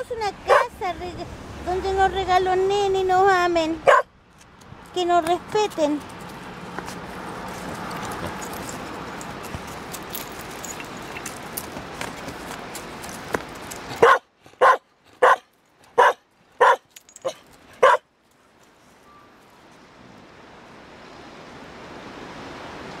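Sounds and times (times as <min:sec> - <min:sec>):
dog barking: 0:00.5 - 0:00.7, 0:03.8 - 0:04.1, 0:14.0 - 0:15.4, 0:16.0 - 0:18.0.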